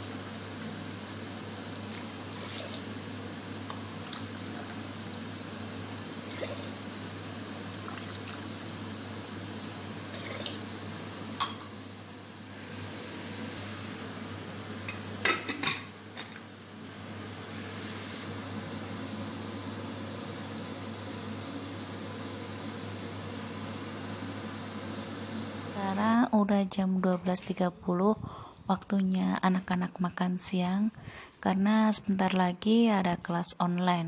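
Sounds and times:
water sloshing and pouring: 0:01.8 - 0:02.9, 0:03.7 - 0:05.2, 0:06.2 - 0:06.8, 0:07.8 - 0:08.7, 0:09.5 - 0:10.7.

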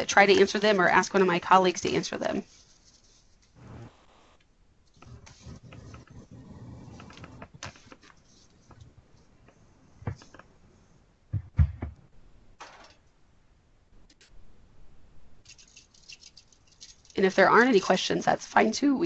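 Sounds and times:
dull thump: 0:11.3 - 0:12.0.

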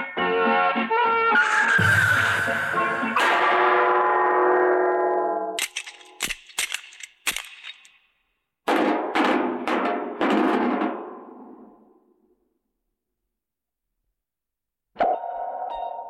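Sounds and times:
ringing struck hits: 0:01.8 - 0:04.2.

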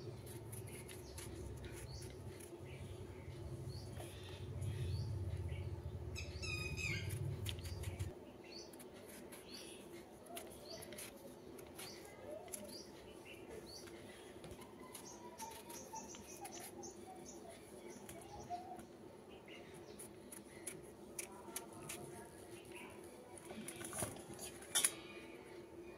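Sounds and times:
small birds chirping: 0:00.0 - 0:25.9
knife scraping pumpkin skin: 0:00.2 - 0:02.8, 0:14.8 - 0:16.9, 0:20.0 - 0:22.4.

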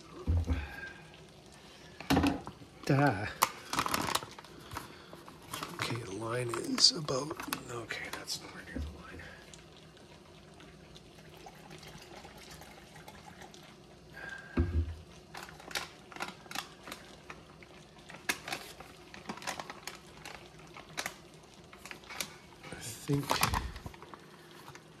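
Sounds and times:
water poured into plastic pouch: 0:02.8 - 0:14.4, 0:15.0 - 0:25.0
plastic pouch crinkling: 0:03.3 - 0:08.7, 0:15.3 - 0:24.8
thump: 0:14.6 - 0:14.9.

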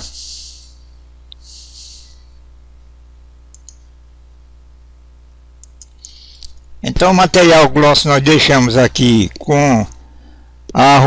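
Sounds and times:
short hiss: 0:00.0 - 0:00.8, 0:01.4 - 0:02.2
low electrical hum: 0:00.0 - 0:11.0
computer mouse clicks: 0:03.5 - 0:03.9, 0:05.6 - 0:06.6.

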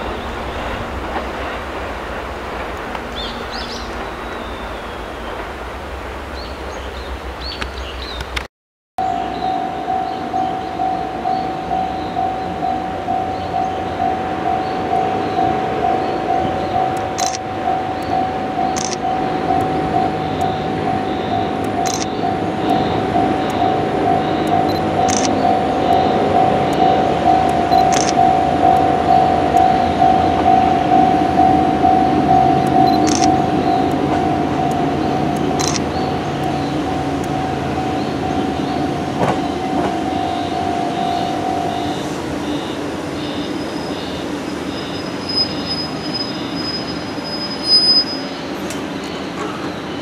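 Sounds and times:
electric train rumbling: 0:00.0 - 0:50.0
birds chirping: 0:02.7 - 0:05.5, 0:06.3 - 0:08.4, 0:09.0 - 0:47.6
electronic crossing bell dinging: 0:09.0 - 0:46.8.

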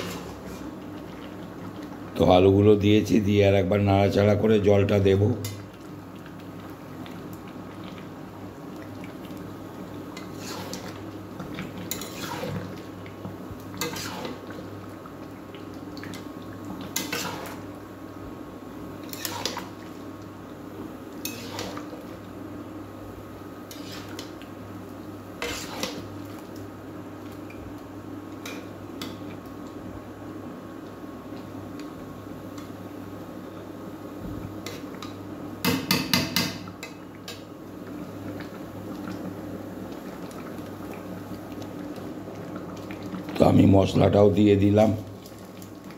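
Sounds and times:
metal spatula scraping a pan: 0:00.0 - 0:00.7, 0:10.2 - 0:11.0, 0:11.9 - 0:12.6, 0:13.8 - 0:14.4, 0:17.0 - 0:17.6, 0:19.1 - 0:19.6, 0:21.2 - 0:21.9, 0:23.7 - 0:24.2, 0:25.4 - 0:26.1.

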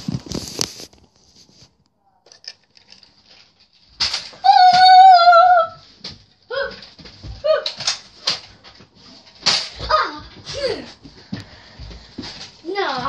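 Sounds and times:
handling rustle and knocking: 0:00.0 - 0:04.4.

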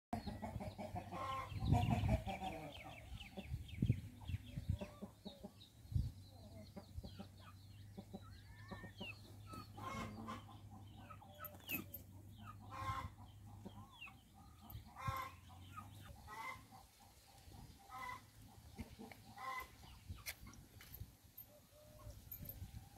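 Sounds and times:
chickens clucking: 0:00.2 - 0:22.9.

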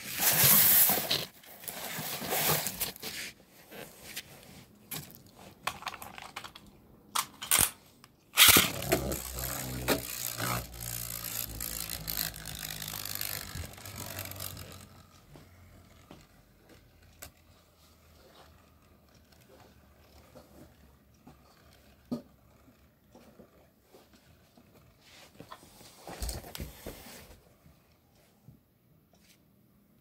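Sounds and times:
spinning top whirring and scraping: 0:08.4 - 0:25.0.

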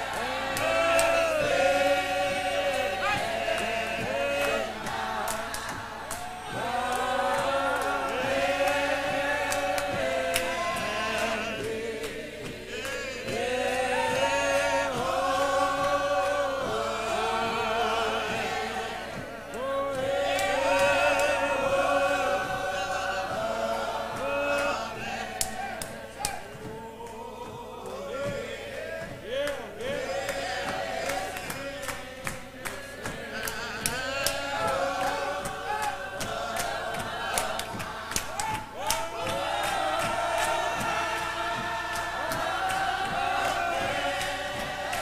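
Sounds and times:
choir singing a cappella: 0:00.0 - 0:45.0
hands clapping: 0:00.0 - 0:45.0.

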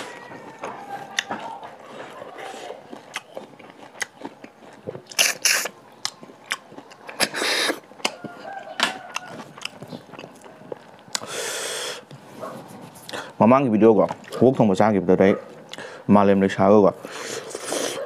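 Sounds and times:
wet chewing: 0:00.0 - 0:12.2, 0:17.0 - 0:18.0
person slurping snails: 0:01.1 - 0:08.2, 0:11.1 - 0:12.1, 0:17.1 - 0:18.0.

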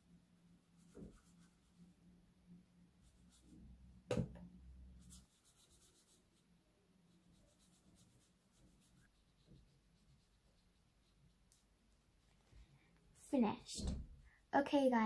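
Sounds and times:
paintbrush scratching on paper: 0:00.7 - 0:01.9, 0:03.0 - 0:03.6, 0:05.0 - 0:12.5.

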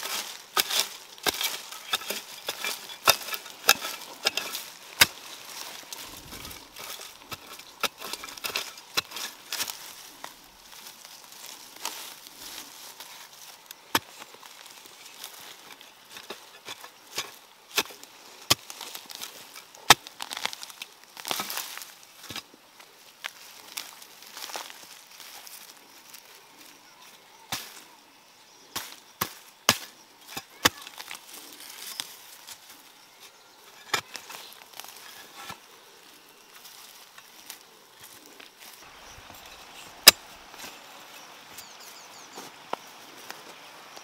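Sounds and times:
rustling and snapping plant litter: 0:00.0 - 0:22.4.

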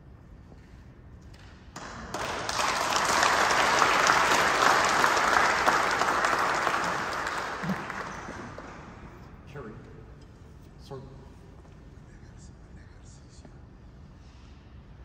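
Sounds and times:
audience applauding: 0:01.8 - 0:09.2.

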